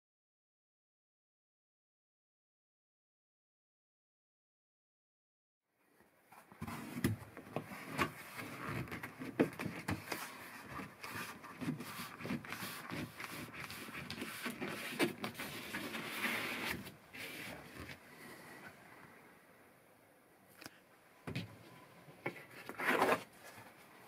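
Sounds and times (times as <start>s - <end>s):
foam rustling and rubbing: 6.6s - 18.0s.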